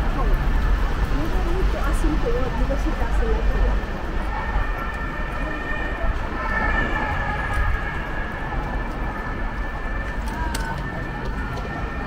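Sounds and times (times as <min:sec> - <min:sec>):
low street rumble: 0:00.0 - 0:12.0.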